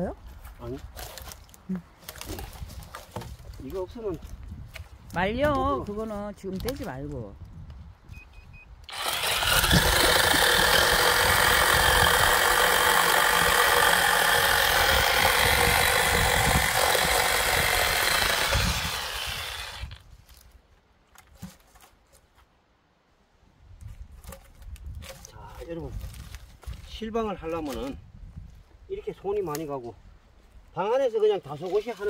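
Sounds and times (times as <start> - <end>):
chainsaw cutting wood: 8.9 - 20.0.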